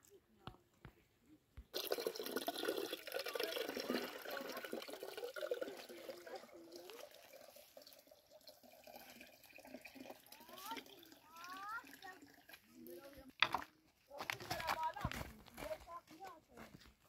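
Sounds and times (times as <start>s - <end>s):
water pouring into plastic jug: 1.7s - 13.7s.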